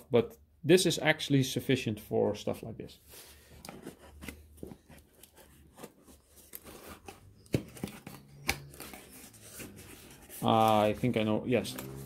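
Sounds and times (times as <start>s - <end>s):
cardboard scraping and rustling: 3.4s - 12.0s.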